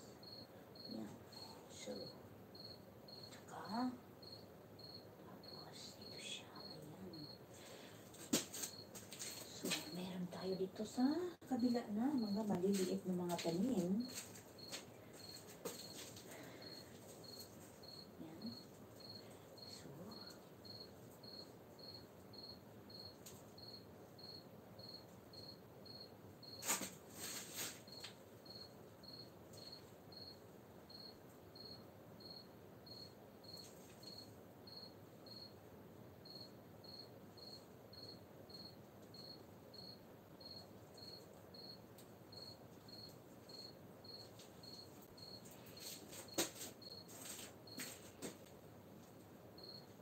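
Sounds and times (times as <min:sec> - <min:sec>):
cricket chirping: 0:00.0 - 0:50.0
crackling rustle: 0:26.6 - 0:28.2, 0:44.2 - 0:49.3.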